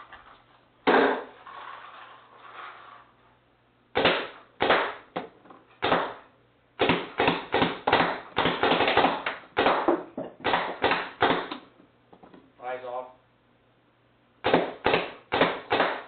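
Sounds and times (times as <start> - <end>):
paintball marker shots: 4.0 - 5.2, 5.8 - 11.7, 14.4 - 16.0.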